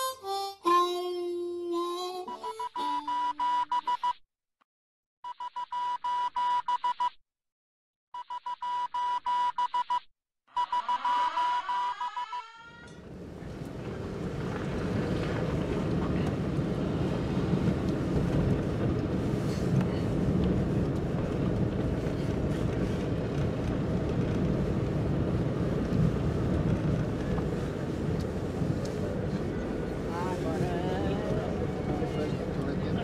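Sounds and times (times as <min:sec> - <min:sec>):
car engine and tyre noise: 0:13.0 - 0:33.0.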